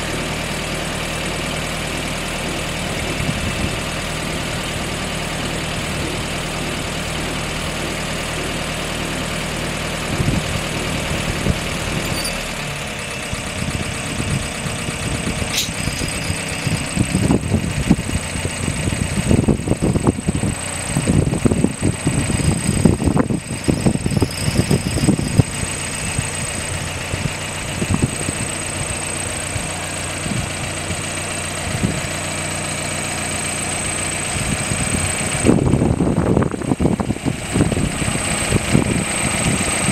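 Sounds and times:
jeep engine idling: 0.0s - 39.9s
wind buffeting microphone: 2.9s - 4.6s, 10.0s - 12.1s, 13.3s - 32.2s, 34.2s - 39.9s.

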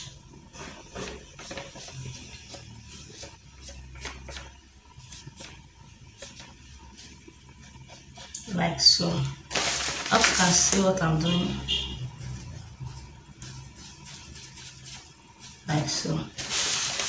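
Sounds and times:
marker scratching on paper: 0.6s - 8.7s, 11.2s - 16.1s.

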